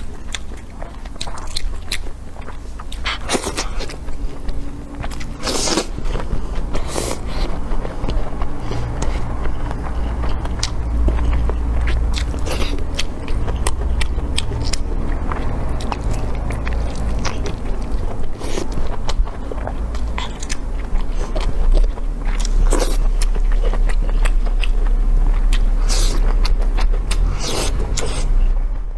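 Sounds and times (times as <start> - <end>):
close biting and chewing: 0.0 - 28.4
steady low hum: 0.0 - 28.9.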